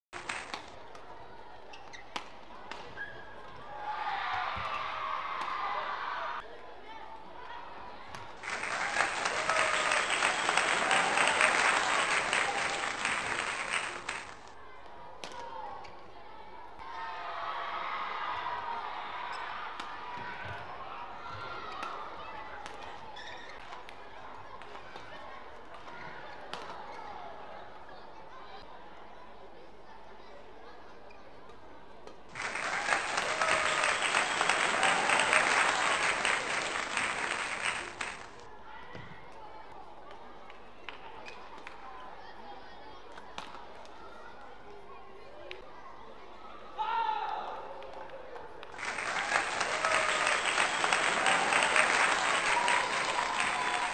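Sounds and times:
audience applauding: 0:00.1 - 0:00.7, 0:08.4 - 0:14.5, 0:32.3 - 0:38.4, 0:48.8 - 0:53.9.

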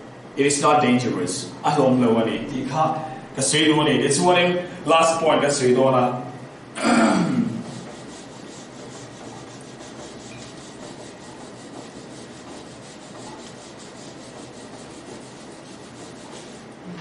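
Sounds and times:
eraser rubbing on whiteboard: 0:07.6 - 0:16.8.

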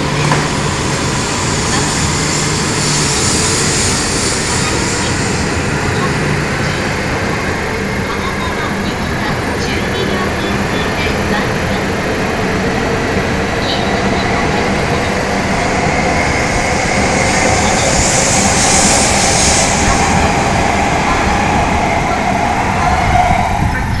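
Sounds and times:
train hiss: 0:00.0 - 0:08.4, 0:14.0 - 0:24.0
high-speed train passing: 0:00.0 - 0:24.0
train whine: 0:00.0 - 0:24.0.

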